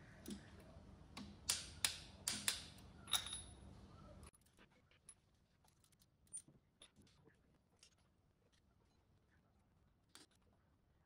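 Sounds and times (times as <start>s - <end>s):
tools and metal parts clinking: 2.4s - 7.1s.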